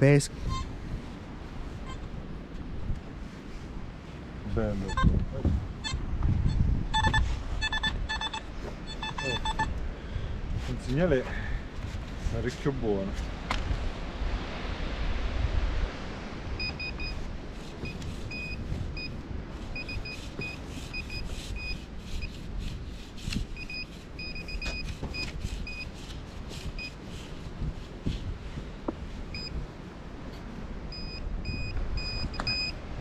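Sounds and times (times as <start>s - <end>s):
metal detector beeps: 4.8s - 5.2s, 5.8s - 9.8s, 16.6s - 17.2s, 17.8s - 19.2s, 19.8s - 22.3s, 23.6s - 25.9s, 26.8s - 27.0s, 29.3s - 29.6s, 30.9s - 32.8s
hand scoop scraping sand: 17.5s - 29.3s.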